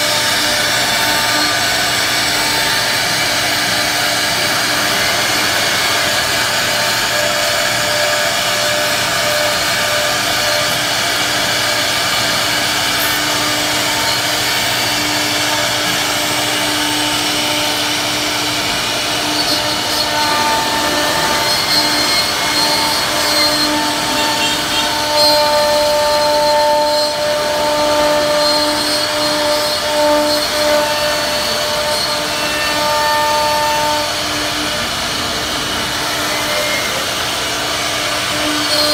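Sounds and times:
machine whine: 0:00.0 - 0:38.9
router bit cutting wood: 0:00.0 - 0:38.9.

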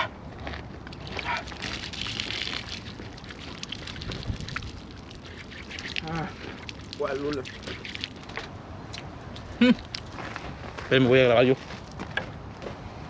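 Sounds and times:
water splashing over hands: 0:01.0 - 0:08.4.

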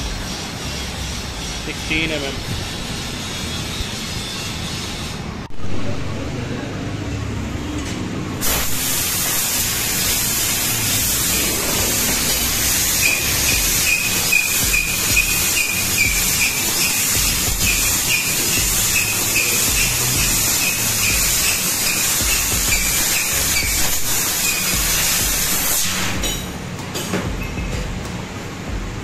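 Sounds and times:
laser cutter nozzle hissing: 0:08.4 - 0:26.3.

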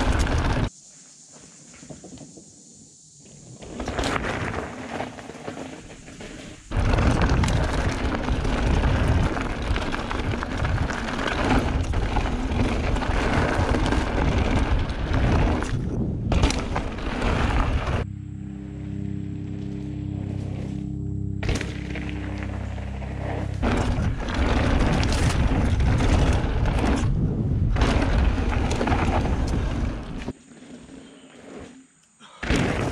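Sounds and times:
wind buffeting microphone: 0:06.7 - 0:18.1, 0:23.6 - 0:30.2.

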